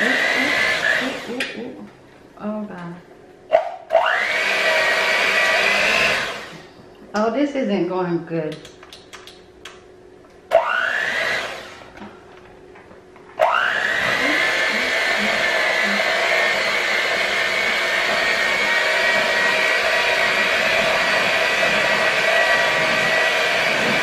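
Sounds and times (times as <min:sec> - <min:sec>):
electric hand mixer whining: 0:00.0 - 0:01.6, 0:03.9 - 0:06.6, 0:10.5 - 0:12.0, 0:13.4 - 0:24.0.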